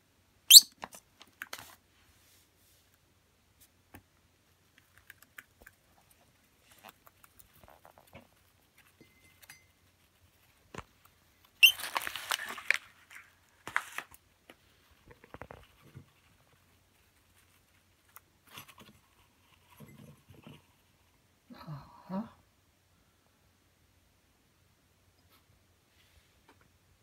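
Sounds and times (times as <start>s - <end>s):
tissue paper rustling: 11.7s - 14.2s.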